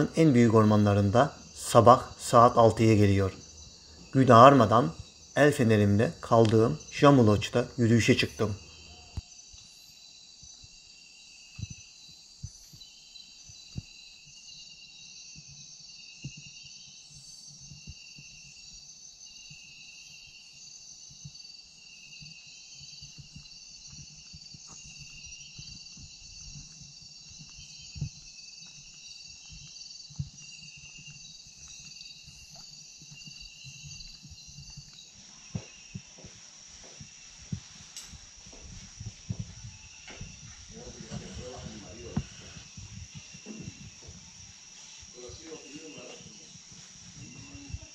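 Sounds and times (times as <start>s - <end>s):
insect chorus shrilling: 0.0s - 47.9s
footsteps on a walkway: 19.4s - 47.9s.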